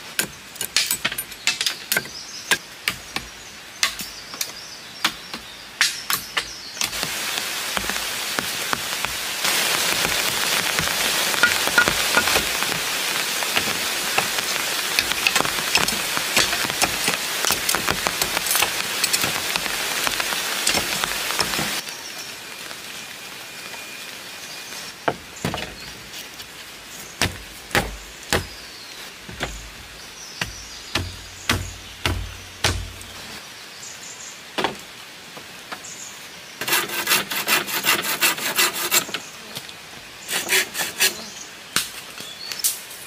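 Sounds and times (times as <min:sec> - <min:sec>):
steady rain: 0:00.0 - 0:43.0.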